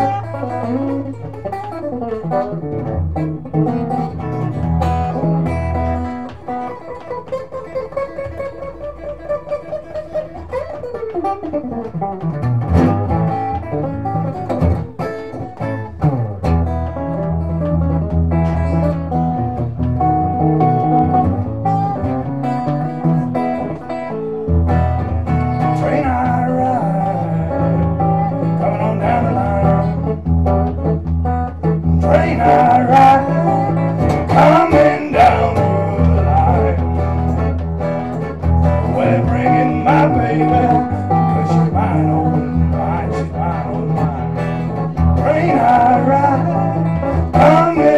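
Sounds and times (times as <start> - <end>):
acoustic guitar strumming: 0.0 - 47.9
bass line: 24.4 - 47.9
man singing: 25.6 - 30.2, 31.8 - 37.6, 38.6 - 47.9.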